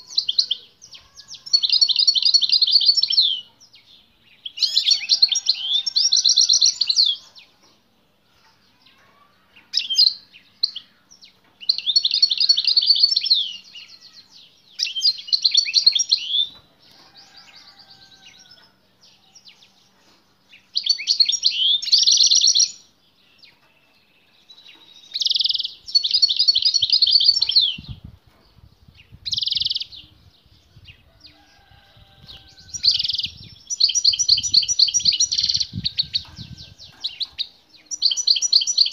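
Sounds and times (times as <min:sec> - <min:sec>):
goldfinch twittering song: 0:20.5 - 0:38.9.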